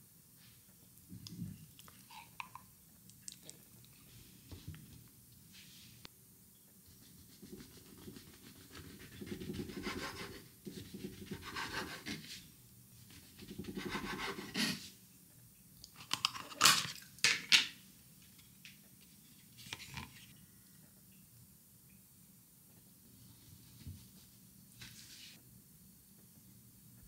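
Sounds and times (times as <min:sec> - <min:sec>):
knife sawing through bread: 0:07.5 - 0:10.4, 0:11.1 - 0:12.3, 0:13.5 - 0:14.8.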